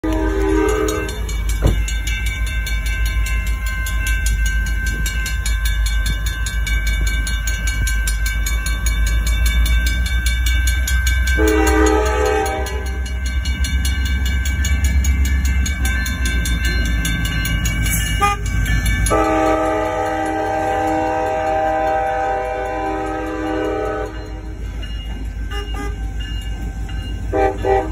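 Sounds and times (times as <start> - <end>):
locomotive horn blasts: 0.0 - 1.3, 11.4 - 13.0, 18.2 - 18.5, 19.1 - 24.4, 25.5 - 26.0, 27.3 - 27.9
crossing warning bell ringing: 0.0 - 27.9.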